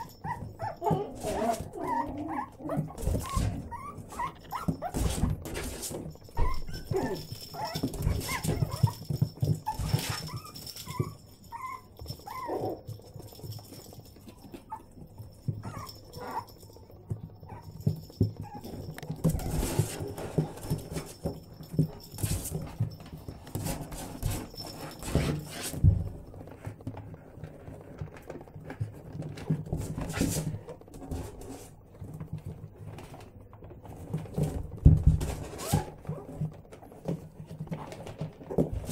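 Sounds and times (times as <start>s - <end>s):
puppies whimpering and yipping: 0.0s - 5.3s, 6.3s - 12.9s, 15.6s - 16.7s, 18.4s - 19.9s.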